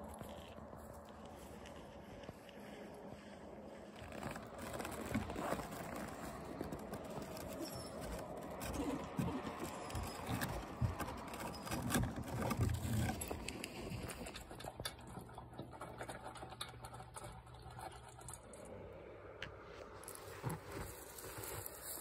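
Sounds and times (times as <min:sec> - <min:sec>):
footsteps crunching in snow: 0:00.0 - 0:11.2, 0:19.9 - 0:22.0.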